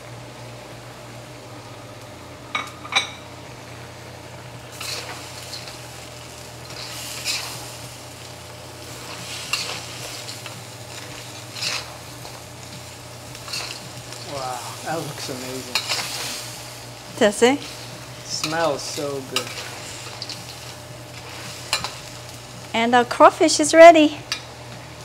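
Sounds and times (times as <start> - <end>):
low sizzle: 0.0 - 25.0
spatula scraping a wok: 6.6 - 7.8, 8.8 - 12.4, 13.3 - 14.2, 15.6 - 16.6, 17.6 - 22.3.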